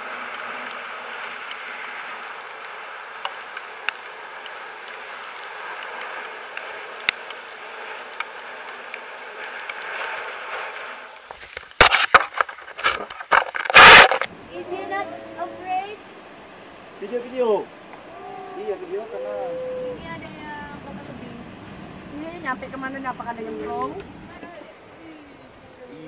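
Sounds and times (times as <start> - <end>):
faint ticks: 0.2 - 11.8.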